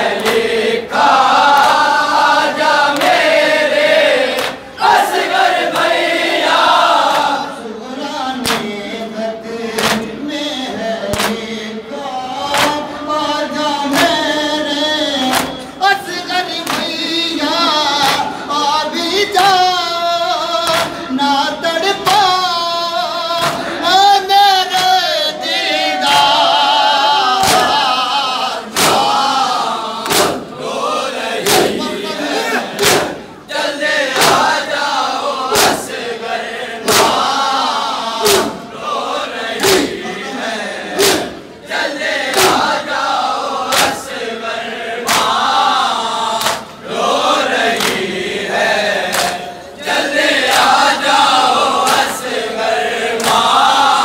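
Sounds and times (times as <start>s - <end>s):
group singing along: 0.0s - 54.0s
rhythmic chest-beating slaps: 0.0s - 54.0s
man singing lament through microphone: 7.5s - 25.6s.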